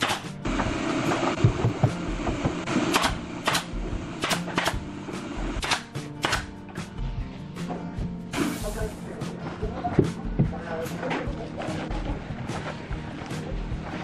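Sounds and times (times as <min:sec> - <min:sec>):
nail gun shots: 0:00.0 - 0:00.3, 0:02.9 - 0:04.8, 0:05.6 - 0:06.5
background music: 0:00.0 - 0:14.0.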